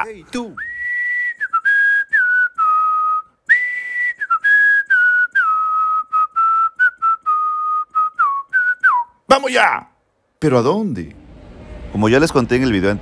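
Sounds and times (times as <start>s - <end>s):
person whistling a melody: 0.6s - 9.2s.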